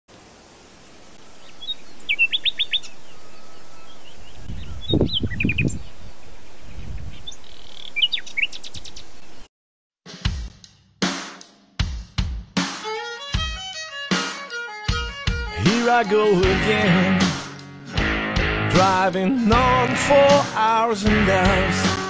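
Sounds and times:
birds chirping: 0.8s - 9.5s.

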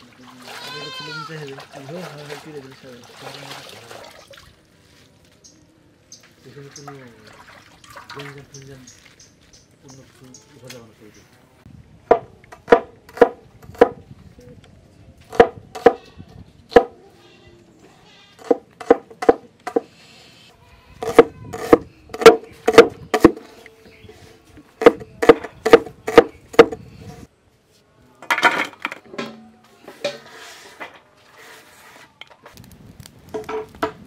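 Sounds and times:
cleaver chopping on wooden board: 21.0s - 23.4s, 24.8s - 26.8s
onion scraped onto steel plate: 29.8s - 32.2s.

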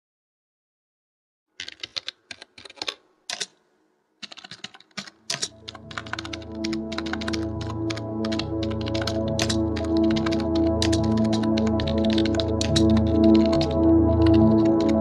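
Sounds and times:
keyboard typing: 1.6s - 3.6s, 4.2s - 15.0s
music with low bass: 5.6s - 15.0s.

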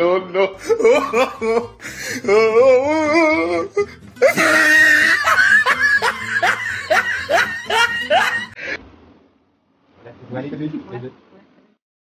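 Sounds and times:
wavering vocal sound: 0.0s - 8.2s
loud laughter: 0.6s - 8.6s.

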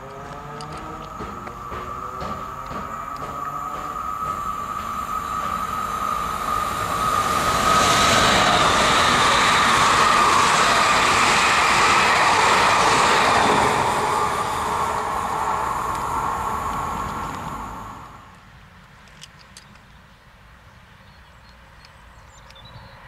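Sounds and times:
steady high whine: 0.0s - 18.4s
electric train passing: 0.0s - 18.6s.

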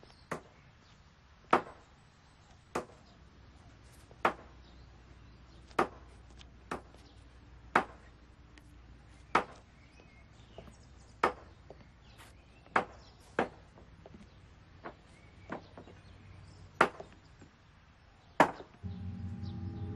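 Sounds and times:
faint low hum: 18.8s - 19.9s.

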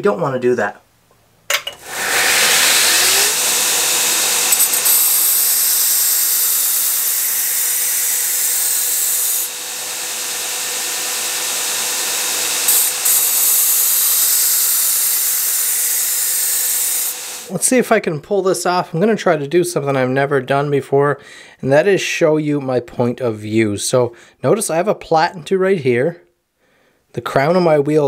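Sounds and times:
belt grinder grinding steel: 1.6s - 17.5s
grinder machine hum: 1.6s - 17.5s.

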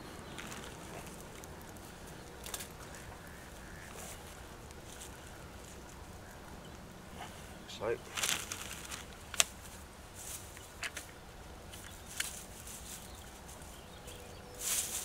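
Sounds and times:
rustling of paper bag: 0.0s - 3.0s, 8.0s - 10.5s, 11.8s - 15.0s.

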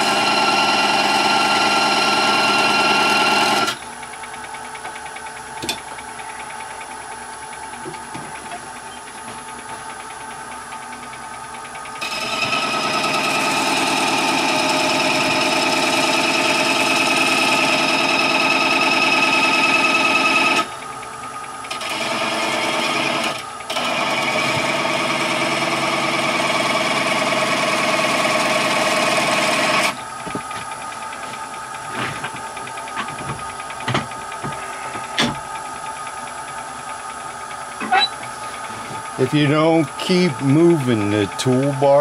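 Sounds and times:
lathe tool buzzing on wood: 0.0s - 3.8s, 12.0s - 20.8s, 21.7s - 30.0s, 38.0s - 42.0s.

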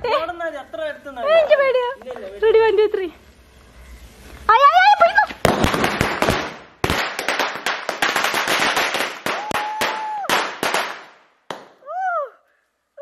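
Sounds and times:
firecrackers cracking and banging: 4.2s - 11.9s.

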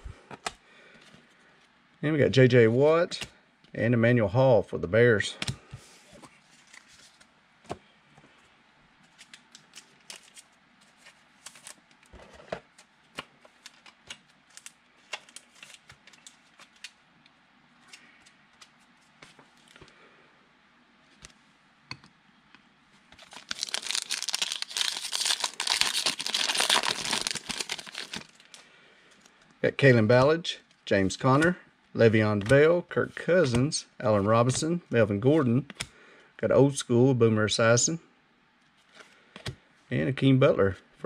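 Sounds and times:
trading cards being handled: 5.4s - 7.3s, 9.0s - 17.0s, 23.1s - 30.2s
foil wrapper torn and crinkled: 23.2s - 28.6s.

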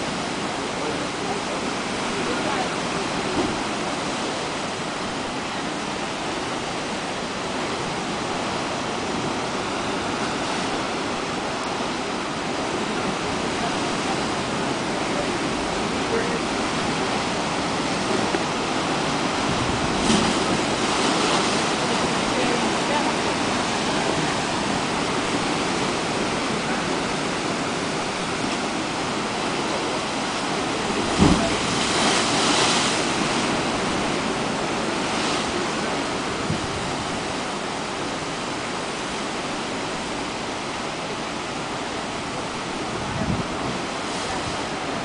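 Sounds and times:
surf washing into rock crevice: 0.0s - 45.0s
low thump: 31.2s - 31.6s.

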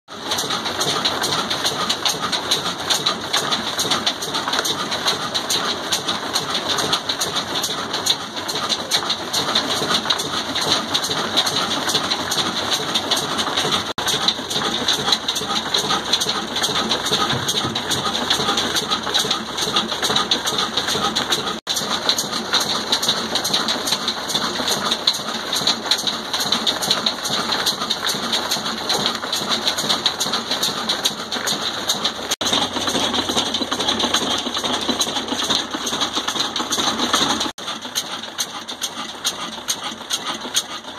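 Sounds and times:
diesel engine mechanical clatter: 0.1s - 40.9s.

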